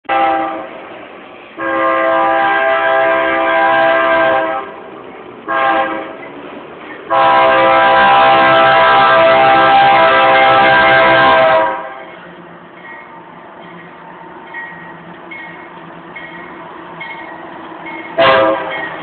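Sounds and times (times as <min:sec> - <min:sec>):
locomotive air horn blasts: 0:00.1 - 0:00.7, 0:01.6 - 0:04.8, 0:05.5 - 0:06.2, 0:07.1 - 0:12.0, 0:18.2 - 0:18.8.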